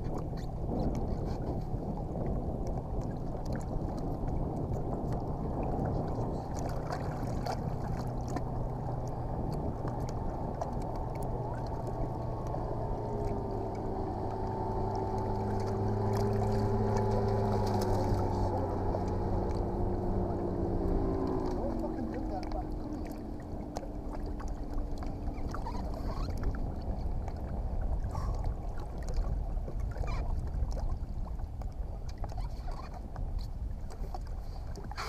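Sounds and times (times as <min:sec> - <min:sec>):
wind and water noise: 0:00.0 - 0:35.0
electric trolling motor hum: 0:06.7 - 0:24.1.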